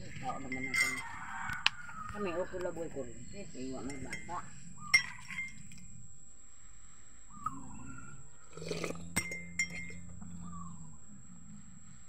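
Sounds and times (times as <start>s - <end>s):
dishware clinking: 0.3s - 1.2s, 3.7s - 5.6s, 9.2s - 10.0s.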